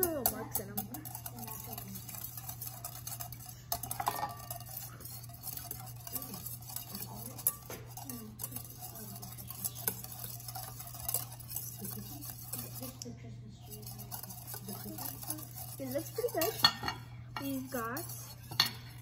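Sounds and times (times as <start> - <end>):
utensil clicking against bowl: 0.0 - 13.1.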